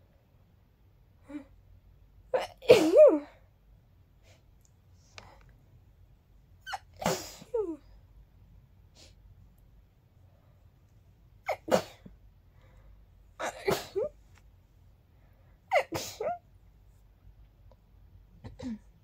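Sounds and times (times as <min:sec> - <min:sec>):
person sneezing: 0:06.7 - 0:07.8, 0:11.4 - 0:12.1, 0:13.4 - 0:14.2, 0:15.7 - 0:16.4.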